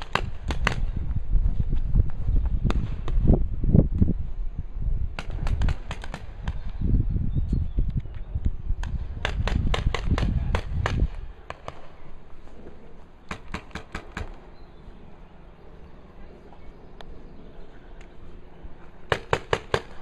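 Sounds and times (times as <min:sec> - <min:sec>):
paintball markers firing: 0:00.0 - 0:00.9, 0:05.2 - 0:06.8, 0:08.8 - 0:12.1, 0:13.2 - 0:14.4, 0:19.1 - 0:20.0.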